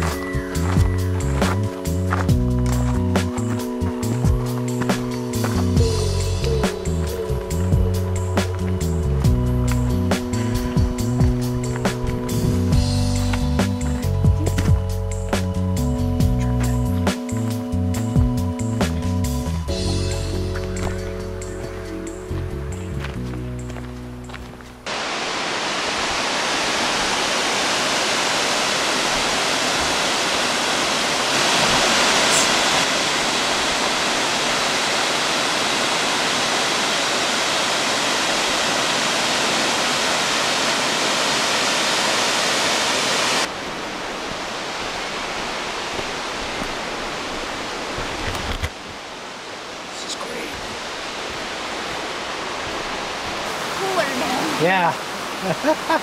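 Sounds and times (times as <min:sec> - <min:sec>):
song playing: 0:00.0 - 0:24.8
waterfall rushing: 0:24.8 - 0:56.0.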